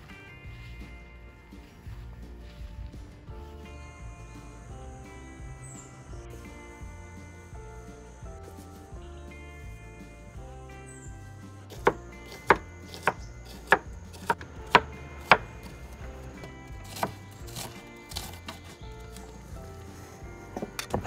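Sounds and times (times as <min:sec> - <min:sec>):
knife chopping on wooden board: 0:11.7 - 0:15.8, 0:16.4 - 0:18.8.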